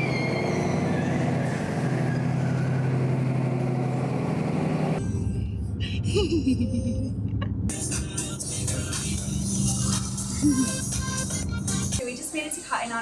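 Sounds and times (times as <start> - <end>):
high squeal: 0.0 - 3.1
vehicle engine humming: 0.0 - 12.2
dull rumble inside a car: 5.0 - 12.0.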